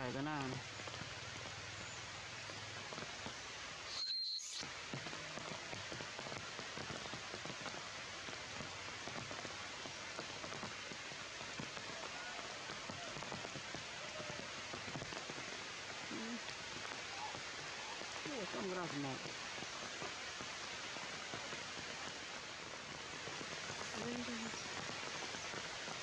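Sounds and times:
heavy rain on foliage: 0.0 - 26.0.

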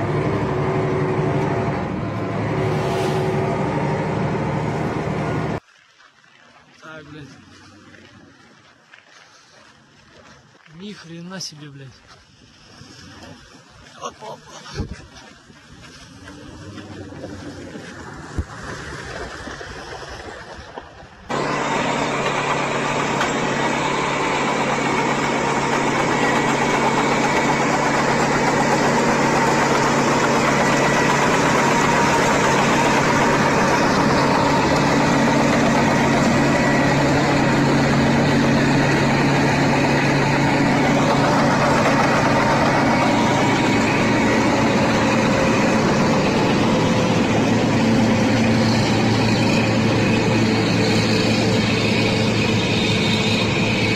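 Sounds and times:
diesel truck engine running: 0.0 - 5.6, 21.1 - 53.9.

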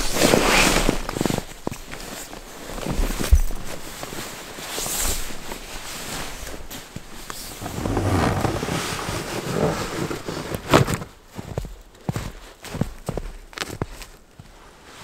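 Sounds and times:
sleeping bag fabric rustling: 0.0 - 12.4
boots crunching through snow: 0.0 - 15.0
bag thumping onto sled: 7.6 - 11.2.

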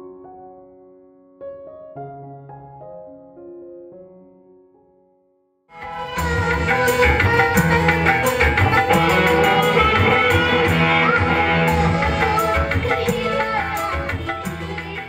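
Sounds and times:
girl singing into a microphone: 5.8 - 15.0
live band playing: 5.8 - 15.0.

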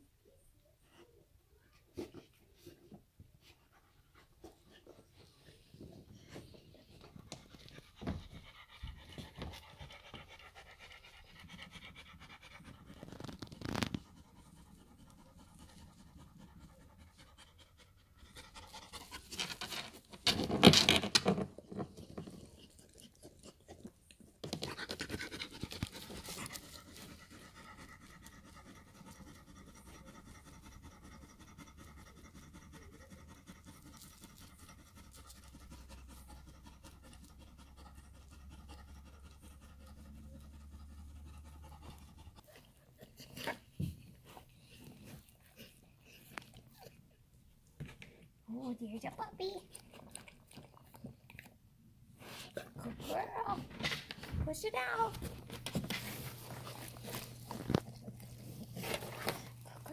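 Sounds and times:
dog panting: 2.0 - 19.9, 22.0 - 47.0, 54.8 - 59.9
dog scratching and rustling pads: 12.8 - 14.2, 53.3 - 59.9.

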